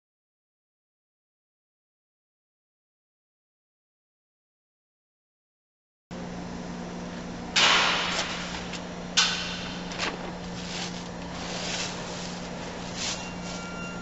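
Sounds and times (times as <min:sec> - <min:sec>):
steady low hum: 0:06.1 - 0:14.0
paper bag ripping: 0:09.9 - 0:13.2
paper and plastic crinkling: 0:09.9 - 0:13.7.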